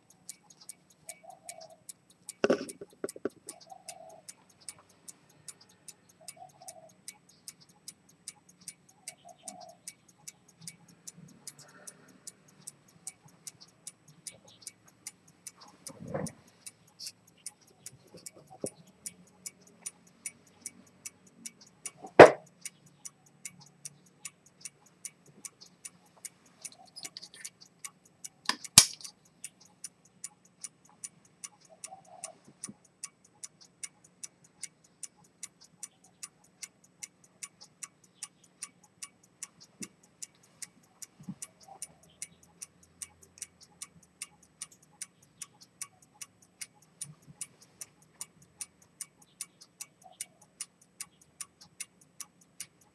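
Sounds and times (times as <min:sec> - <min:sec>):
pocket watch ticking: 0:00.0 - 0:52.9
sharp knocks: 0:22.2 - 0:22.4.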